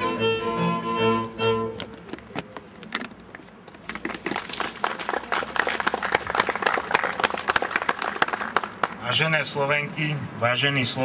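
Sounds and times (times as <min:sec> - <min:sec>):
crowd applauding: 0:04.0 - 0:09.2.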